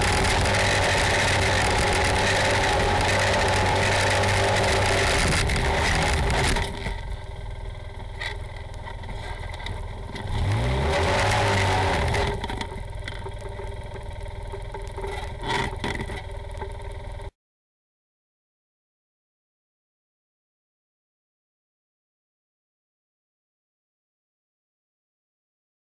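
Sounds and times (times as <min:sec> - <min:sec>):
vehicle engine revving: 0:00.0 - 0:16.6.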